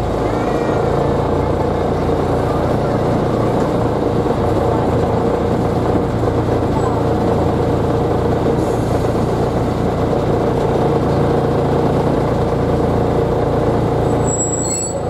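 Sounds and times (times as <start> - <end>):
railcar engine running: 0.0 - 15.0.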